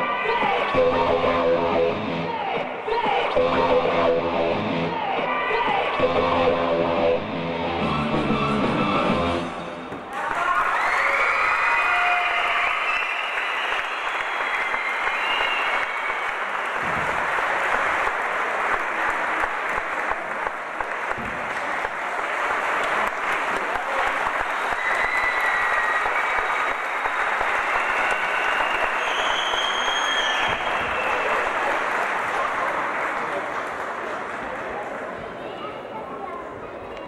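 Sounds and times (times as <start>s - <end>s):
audience applauding: 10.1s - 35.2s.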